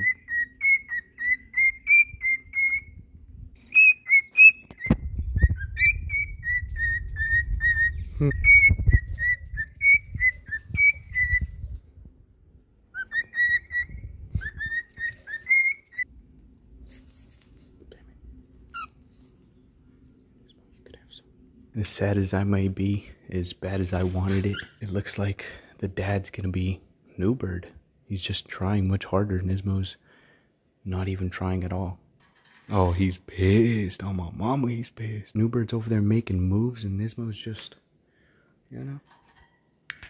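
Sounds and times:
cockatiel whistling: 0:00.0 - 0:03.0, 0:03.7 - 0:11.6, 0:12.9 - 0:16.1
microphone handling rumble: 0:04.9 - 0:12.2.

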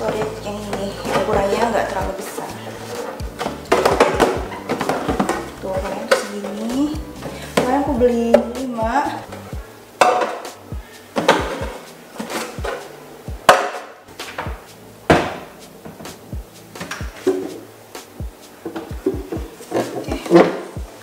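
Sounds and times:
plastic boxes knocking on counter: 0:03.4 - 0:06.6, 0:10.0 - 0:10.5, 0:11.2 - 0:12.8, 0:13.4 - 0:16.1.

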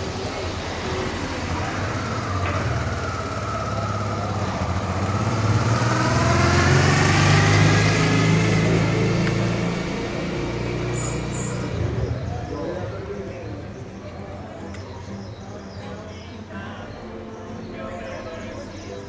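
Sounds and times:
vehicle engine running: 0:00.0 - 0:14.1.

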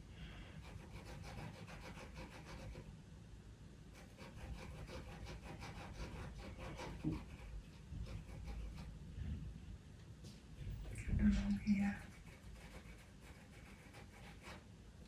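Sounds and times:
pencil strokes on paper: 0:00.6 - 0:02.9, 0:04.0 - 0:08.9, 0:11.2 - 0:14.6.

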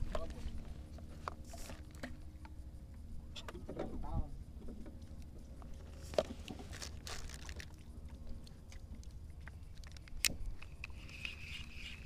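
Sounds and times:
wind rumble on microphone: 0:00.0 - 0:12.0
fishing reel clicking: 0:10.2 - 0:12.0.

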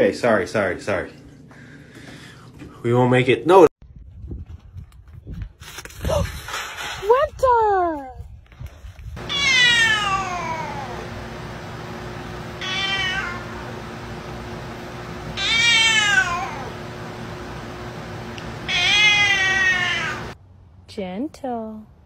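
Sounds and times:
cat meowing: 0:09.2 - 0:11.0, 0:12.6 - 0:13.7, 0:15.4 - 0:16.8, 0:18.7 - 0:20.4.

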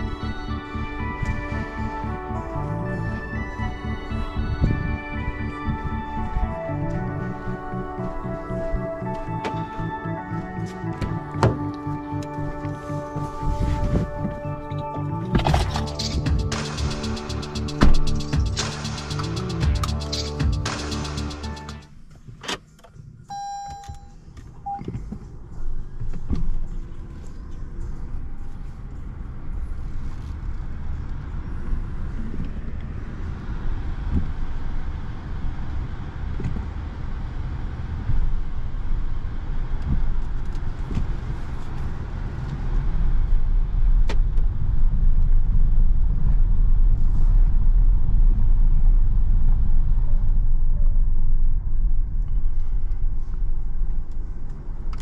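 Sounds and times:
short beep: 0:23.3 - 0:24.9.

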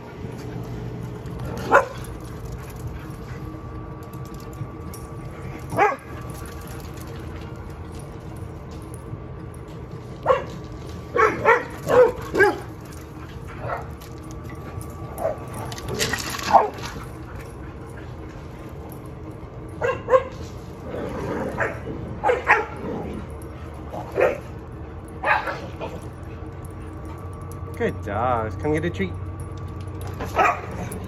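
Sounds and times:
dog barking: 0:01.7 - 0:02.0, 0:05.8 - 0:06.0, 0:10.2 - 0:10.5, 0:11.1 - 0:12.7, 0:21.6 - 0:22.8, 0:25.2 - 0:25.7, 0:30.3 - 0:30.8.

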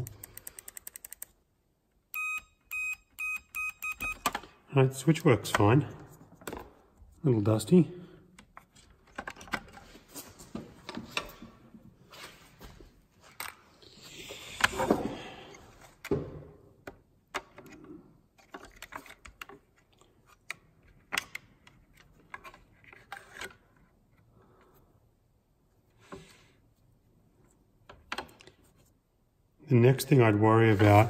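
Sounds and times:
plastic housing rustle and scrape: 0:18.4 - 0:24.2.

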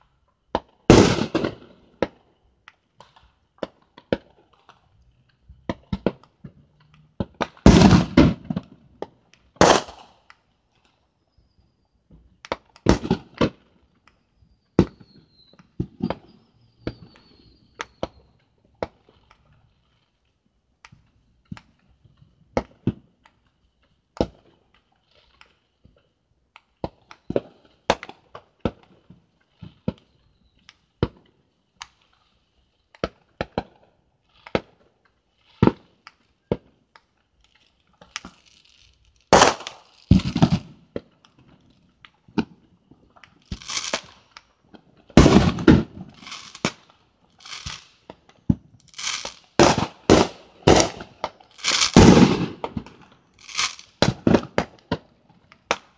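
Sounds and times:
fireworks bangs: 0:00.5 - 0:02.2, 0:05.6 - 0:10.2, 0:12.5 - 0:13.6, 0:38.0 - 0:41.5, 0:43.4 - 0:44.2, 0:45.1 - 0:55.9.

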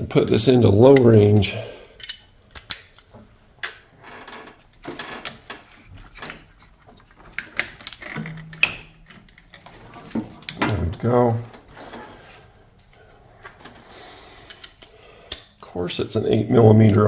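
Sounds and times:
hand tool clicking on nuts: 0:14.5 - 0:15.5.

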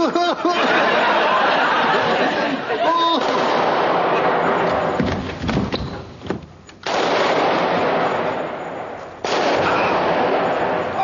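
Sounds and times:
gunfire bursts: 0:06.8 - 0:08.4.

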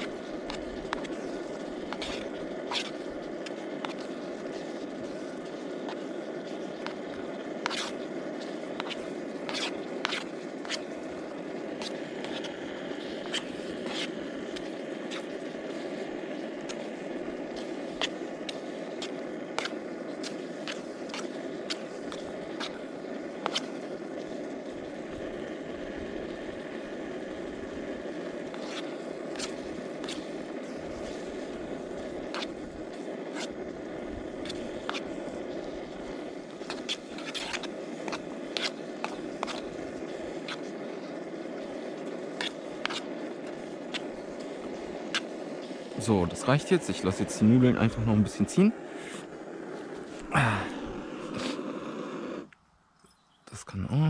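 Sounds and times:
camping stove burner rushing: 0:00.0 - 0:52.6.

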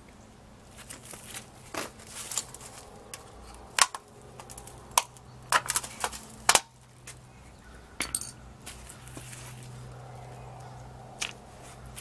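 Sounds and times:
clay flowerpot clinking on stone: 0:08.0 - 0:08.4.

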